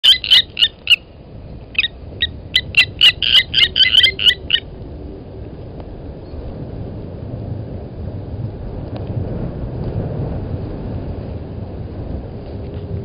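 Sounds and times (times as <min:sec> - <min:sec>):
lapwing metallic alarm calls: 0:00.0 - 0:01.1, 0:01.7 - 0:04.7.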